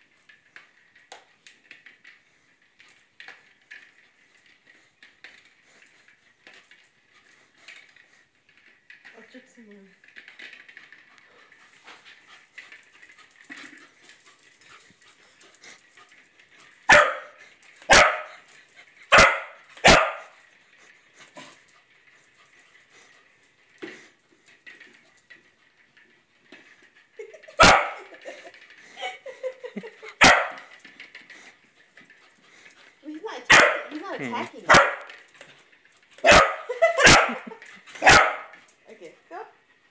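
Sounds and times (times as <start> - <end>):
dog barking: 16.9 - 18.4, 19.1 - 20.4, 27.6 - 28.1, 30.2 - 30.6, 33.5 - 35.1, 36.2 - 38.5.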